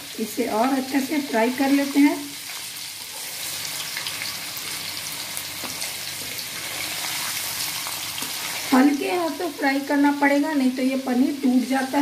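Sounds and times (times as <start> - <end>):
food deep-frying in oil: 0.0 - 12.0.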